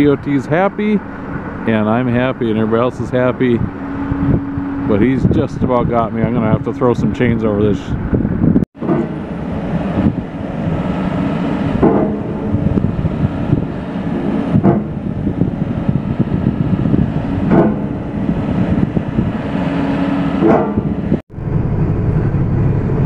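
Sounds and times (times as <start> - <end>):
diesel engine under hydraulic load: 0.0 - 23.0
short sharp knocks: 14.6 - 14.9, 17.5 - 17.9, 20.4 - 20.9.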